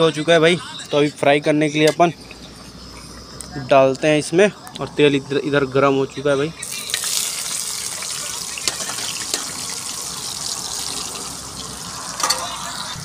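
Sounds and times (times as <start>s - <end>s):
food sizzling in oil: 6.6s - 13.0s
oil popping: 6.7s - 12.6s.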